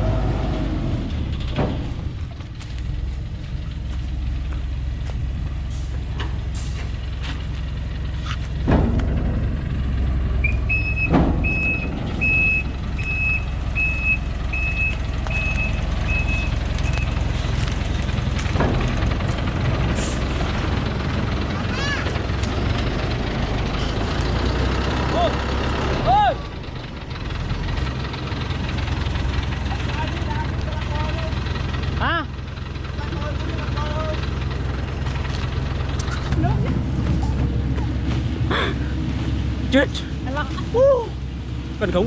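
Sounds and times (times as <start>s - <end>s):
diesel truck engine under load: 0.0s - 42.0s
reversing alarm beeps: 10.4s - 17.2s.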